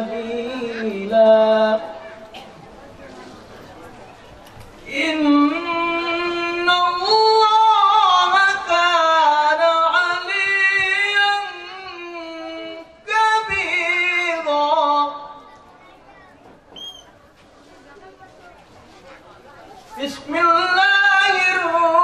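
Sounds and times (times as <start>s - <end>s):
man chanting into a microphone: 0.0s - 2.1s, 4.9s - 15.4s, 20.0s - 22.0s.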